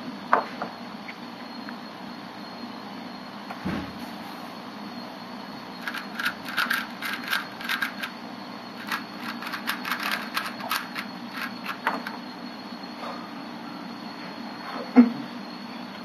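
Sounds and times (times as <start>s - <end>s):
steady room hum: 0.0s - 16.0s
puzzle cube plastic clicks: 5.8s - 8.1s, 8.8s - 12.2s.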